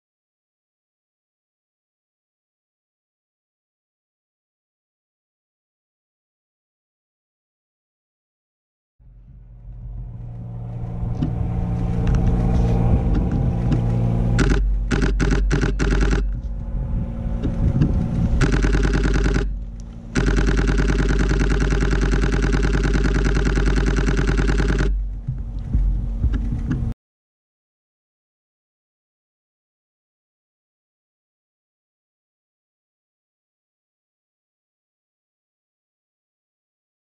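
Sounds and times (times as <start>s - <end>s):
low steady hum: 9.0s - 27.0s
camera shutter clicking: 14.4s - 16.3s, 18.4s - 19.6s, 20.2s - 25.0s.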